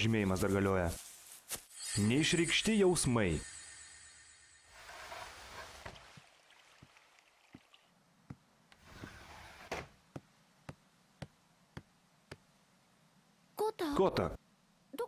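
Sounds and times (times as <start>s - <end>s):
soft rustle: 0.0s - 1.8s.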